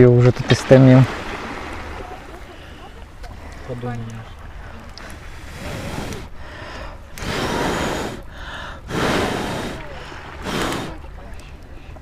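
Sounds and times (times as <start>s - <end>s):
person blowing on log: 7.2s - 8.3s, 8.9s - 11.0s.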